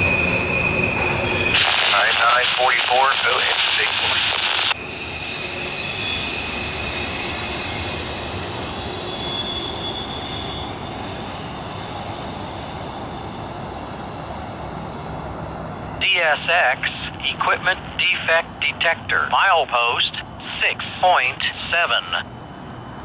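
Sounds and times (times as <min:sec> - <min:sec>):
train wheels squealing on rails: 0:00.0 - 0:03.9, 0:04.8 - 0:23.0
low train rumble: 0:00.0 - 0:23.0.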